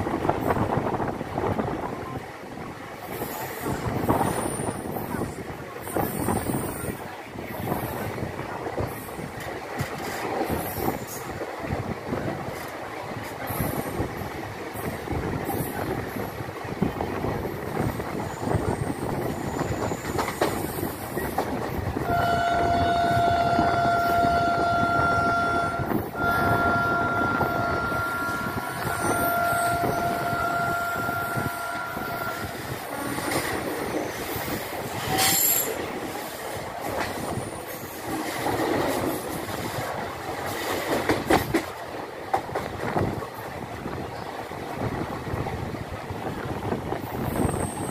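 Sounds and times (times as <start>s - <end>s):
train rumbling on track: 0.0s - 47.9s
long steady tone: 22.0s - 33.2s.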